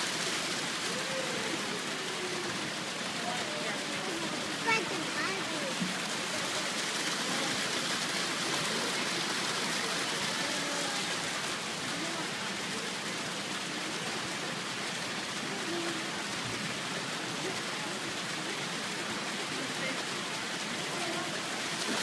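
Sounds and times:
faint voices: 0.0s - 22.0s
running water rushing: 0.0s - 22.0s.

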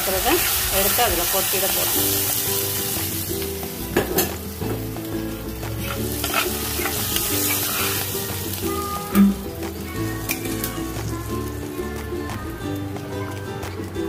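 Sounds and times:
spices sizzling in hot oil: 0.0s - 11.8s
steel ladle stirring: 2.1s - 9.4s
ladle scraping pot: 5.8s - 8.3s.

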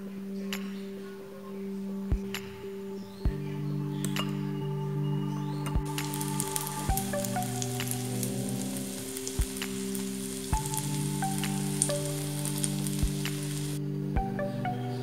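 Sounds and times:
soft background music: 0.0s - 15.0s
batter sizzling in frying pan: 5.9s - 13.8s.

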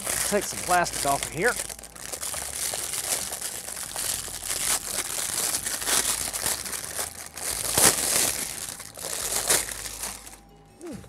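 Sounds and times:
plastic bag crinkling: 0.0s - 10.4s.

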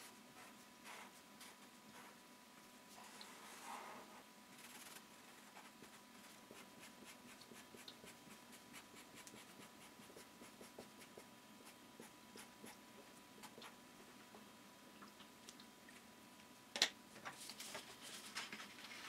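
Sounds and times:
marker scratching on paper: 0.0s - 2.2s, 4.6s - 13.7s.

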